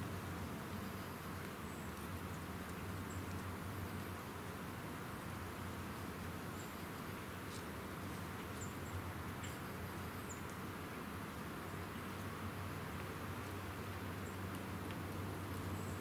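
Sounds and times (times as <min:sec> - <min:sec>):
faint ticks: 0:01.4 - 0:04.2.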